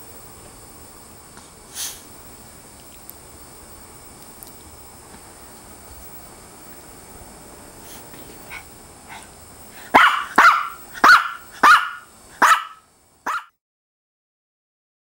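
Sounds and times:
small dog barking: 0:08.5 - 0:13.6
dog yipping: 0:09.9 - 0:13.5.

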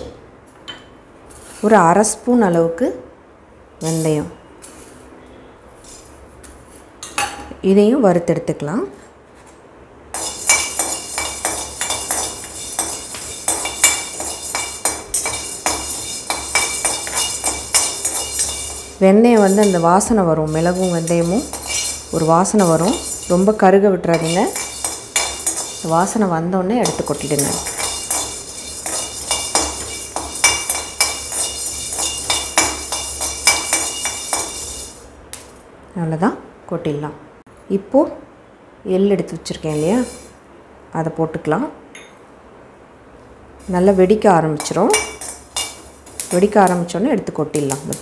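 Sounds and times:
metal spoon scraping pan: 0:03.8 - 0:05.0, 0:10.2 - 0:35.0, 0:39.6 - 0:40.4, 0:43.6 - 0:46.8
faint pan ringing: 0:10.2 - 0:35.0
peppercorns rattling in pan: 0:10.2 - 0:35.6, 0:39.6 - 0:40.4, 0:43.6 - 0:48.0.

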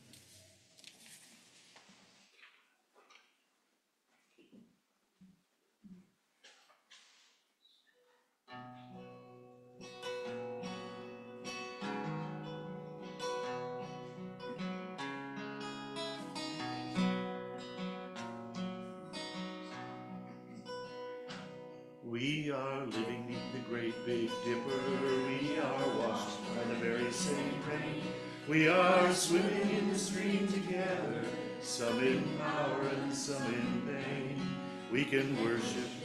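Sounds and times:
acoustic guitar strumming: 0:08.5 - 0:36.0.

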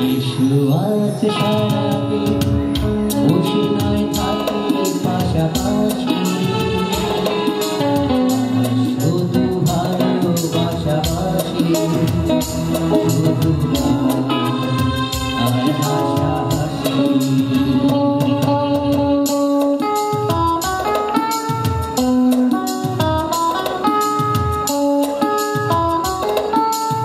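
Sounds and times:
man singing into a microphone: 0:00.0 - 0:21.1
electric guitar: 0:00.0 - 0:27.0
steady drum beat: 0:01.5 - 0:27.0.

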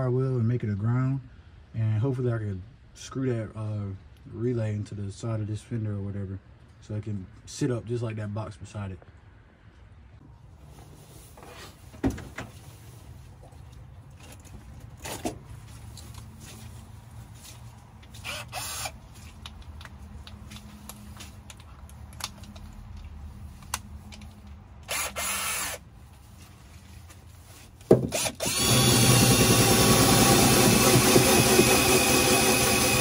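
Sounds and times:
sharp handling knocks: 0:27.8 - 0:28.2.

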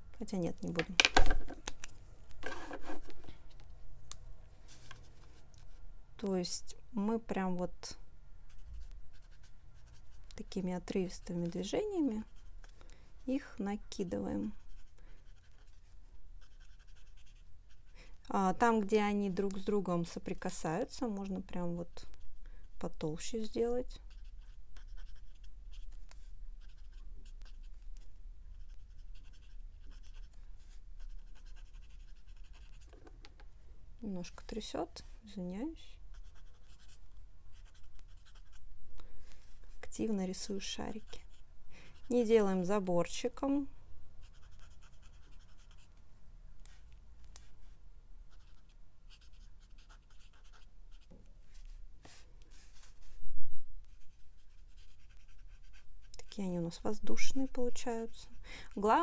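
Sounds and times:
marker scratching on paper: 0:02.4 - 0:03.2, 0:08.5 - 0:10.3, 0:11.4 - 0:12.7, 0:14.3 - 0:17.9, 0:24.0 - 0:33.2, 0:36.1 - 0:38.6, 0:44.2 - 0:45.9, 0:48.3 - 0:53.0, 0:53.8 - 0:58.2.

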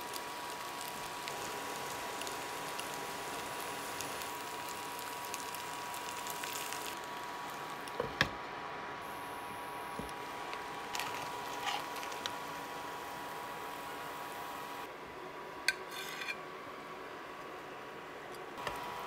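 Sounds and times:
potatoes sizzling in a pan: 0:00.0 - 0:08.0, 0:09.1 - 0:14.8.

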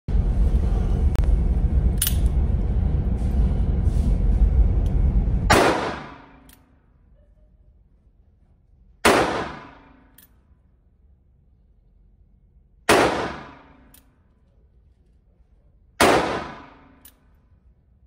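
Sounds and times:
loud steady noise: 0:00.1 - 0:06.6
revolver gunshots echoing: 0:05.5 - 0:06.5, 0:09.0 - 0:10.1, 0:12.9 - 0:13.8, 0:16.0 - 0:17.0.

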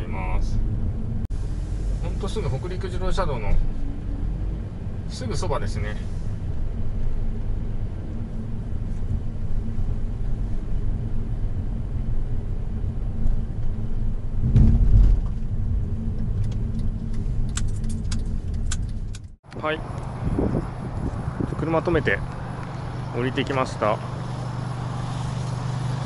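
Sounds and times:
engine and tyres rumbling: 0:00.0 - 0:26.0
thump in car cabin: 0:14.4 - 0:15.5.

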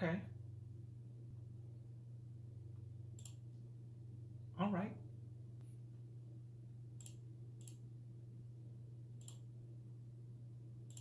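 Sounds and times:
steady low hum: 0:00.0 - 0:11.0
computer mouse clicks: 0:03.2 - 0:03.4, 0:07.0 - 0:07.8, 0:09.2 - 0:09.5.

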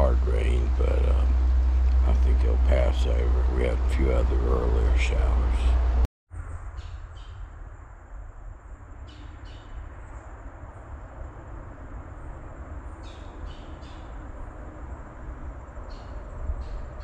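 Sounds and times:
woodland hiss and rumble: 0:00.0 - 0:06.0.

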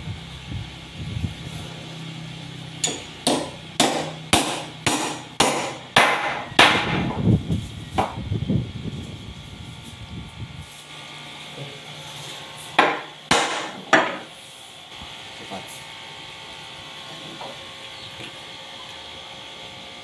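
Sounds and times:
hammer striking wooden bench: 0:02.8 - 0:07.2, 0:12.8 - 0:14.3.

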